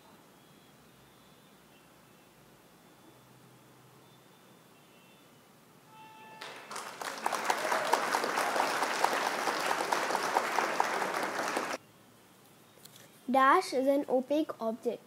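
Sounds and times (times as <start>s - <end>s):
crowd clapping: 6.4s - 11.8s.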